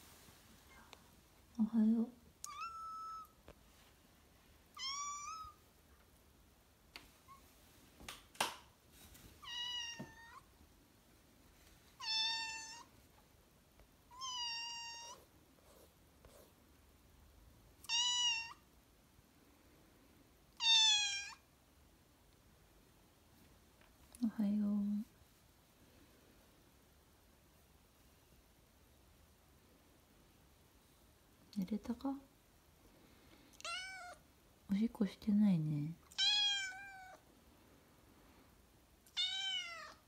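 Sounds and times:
kitten meowing: 2.4s - 3.4s, 4.8s - 5.6s, 9.4s - 10.4s, 12.0s - 12.9s, 14.1s - 15.2s, 17.8s - 18.6s, 20.6s - 21.4s, 33.6s - 34.2s, 36.1s - 37.2s, 39.1s - 40.0s.

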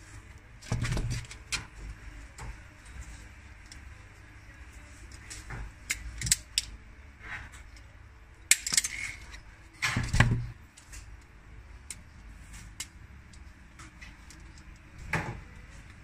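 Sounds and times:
wire stripper clicking and snapping: 5.2s - 6.8s, 8.5s - 11.0s.

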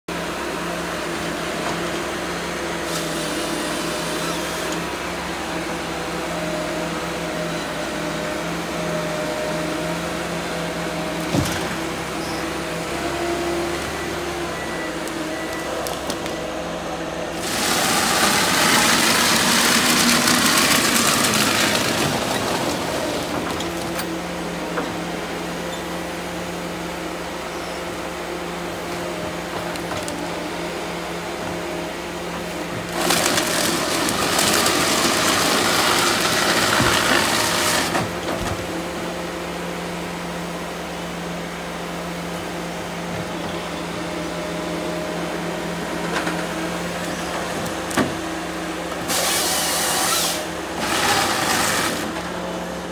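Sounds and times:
diesel harvester engine running: 0.1s - 52.9s.

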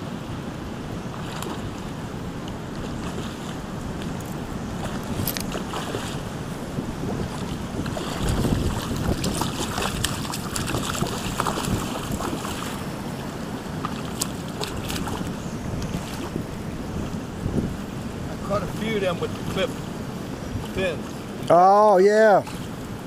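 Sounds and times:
shallow creek rushing: 0.0s - 23.0s
wind buffeting microphone: 0.0s - 23.0s
fish splashing at surface: 7.3s - 12.9s, 13.8s - 15.3s.

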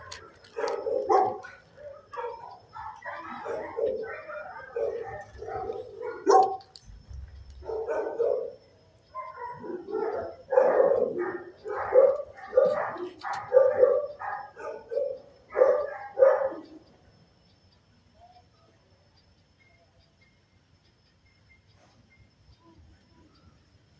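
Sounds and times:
dog barking: 0.0s - 6.7s, 7.6s - 16.9s.

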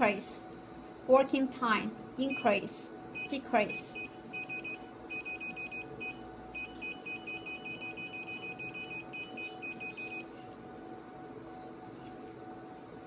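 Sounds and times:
steady low hum: 0.0s - 13.0s
high-pitched key beeps: 3.2s - 10.2s.

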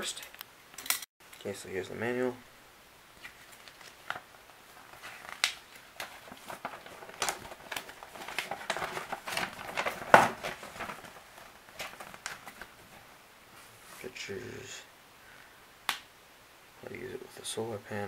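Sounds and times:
paper rustling and crinkling: 3.2s - 14.2s.

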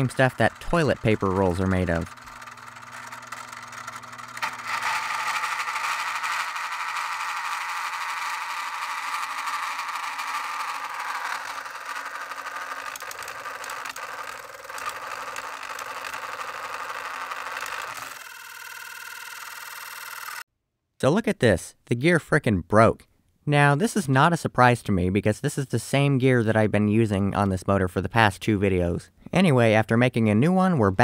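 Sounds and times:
gear clicks and rattles: 0.0s - 20.4s
toy saw blade whirring: 0.0s - 20.4s.

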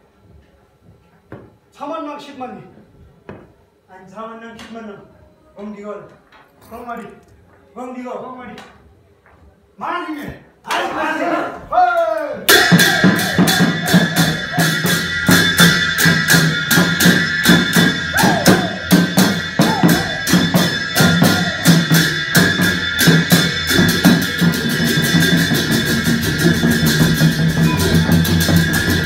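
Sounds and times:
barrel drum beating fast rhythm: 12.5s - 29.0s
high ringing tone: 12.5s - 29.0s.

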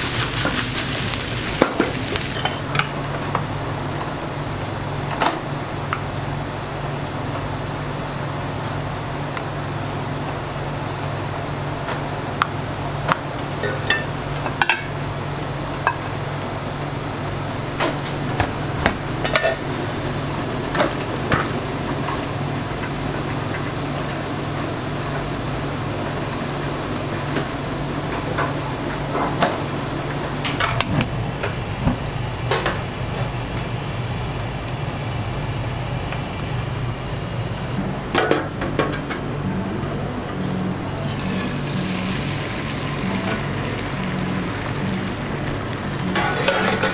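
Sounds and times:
utensils and dishes clacking: 0.0s - 2.9s, 45.9s - 46.9s.

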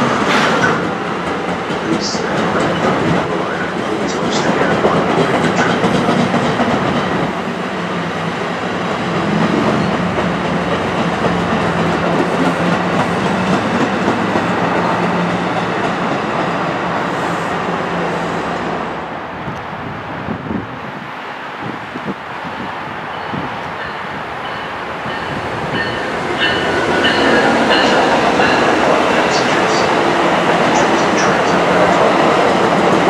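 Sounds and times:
train wheels clickety-clack: 0.0s - 7.4s, 8.8s - 16.3s, 23.2s - 33.0s
train wheels rumbling on rails: 0.0s - 33.0s.

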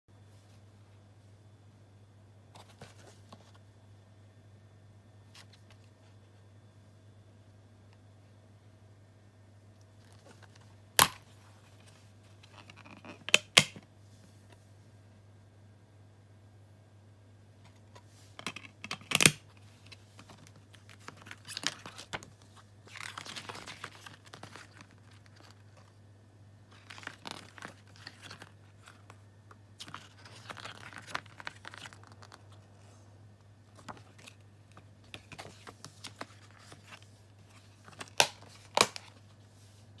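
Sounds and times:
paper pages rustling: 2.6s - 3.6s, 17.7s - 26.0s, 26.7s - 29.2s, 29.8s - 33.0s, 33.6s - 39.8s.

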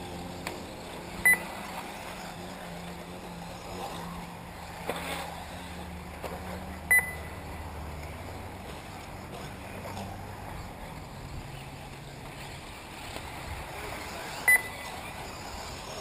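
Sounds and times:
short high electronic beeps: 1.2s - 1.4s, 6.9s - 7.3s, 14.5s - 14.8s.

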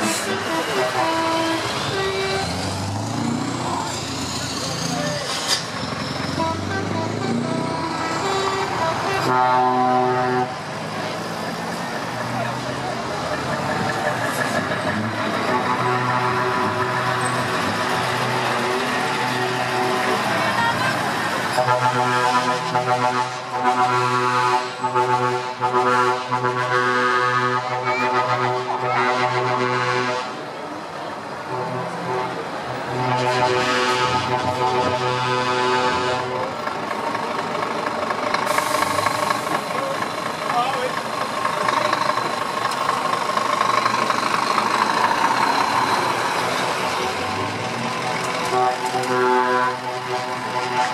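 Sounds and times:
truck air horn blasts: 0.0s - 2.7s, 6.3s - 10.7s, 15.2s - 30.4s, 31.4s - 36.6s, 48.4s - 50.9s.

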